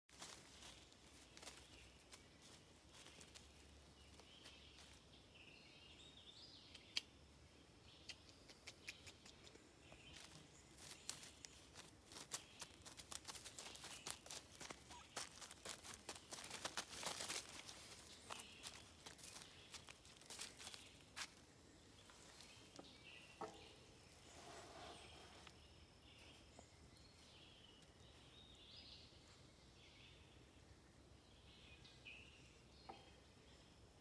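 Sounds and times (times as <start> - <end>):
footsteps crunching through dry leaves: 0.1 - 5.0, 10.1 - 21.4
faint bird calls: 14.0 - 15.6.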